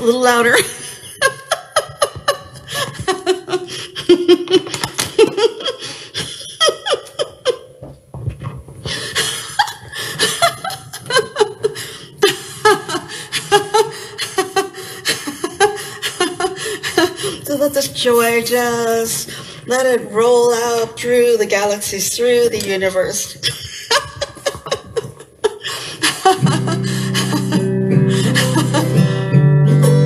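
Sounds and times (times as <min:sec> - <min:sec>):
woman laughing hard: 0:00.6 - 0:07.8, 0:08.9 - 0:17.6, 0:23.3 - 0:29.2.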